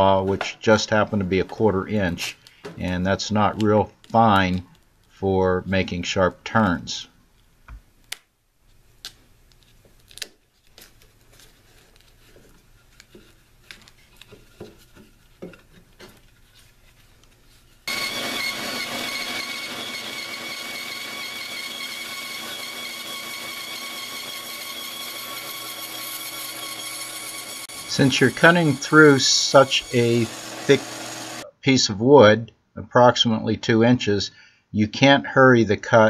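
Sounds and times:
bandsaw cutting wood: 17.9 - 31.5.

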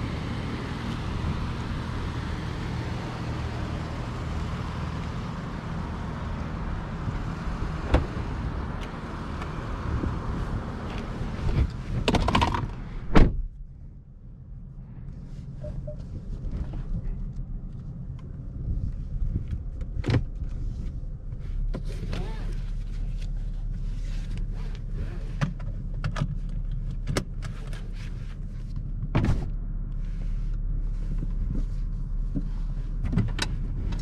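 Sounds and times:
car door shutting: 7.8 - 8.2, 11.4 - 13.5, 29.1 - 29.6.

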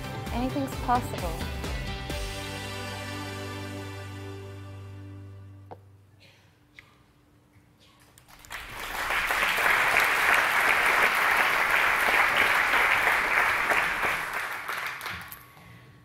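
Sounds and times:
audience applauding: 8.3 - 15.4.

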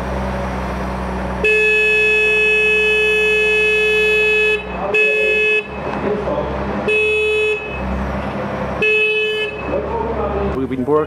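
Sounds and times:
heavy machine engine running: 0.0 - 10.6
machine horn blasts: 1.4 - 5.9, 6.9 - 7.9, 8.8 - 9.8.

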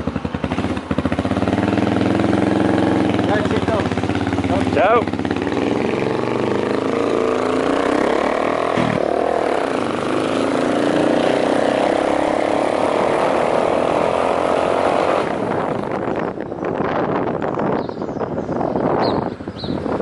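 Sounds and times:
motorcycle engine running: 0.0 - 18.2.

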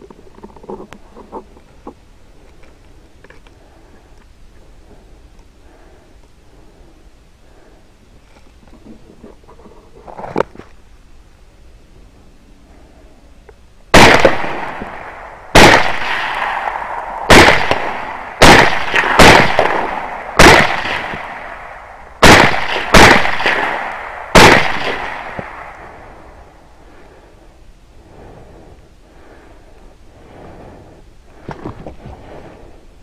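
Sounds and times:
echoing rifle shots: 13.9 - 26.4.

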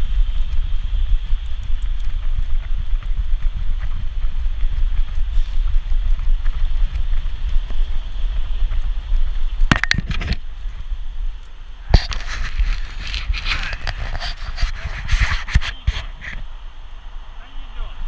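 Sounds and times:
camera rumbling and bumping: 1.2 - 10.9, 11.9 - 16.5.

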